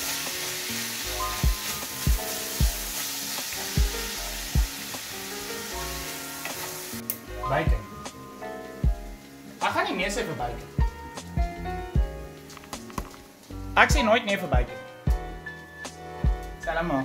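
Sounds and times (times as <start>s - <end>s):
meat sizzling in a skillet: 0.0s - 7.3s
background music with steady beat: 0.0s - 17.0s.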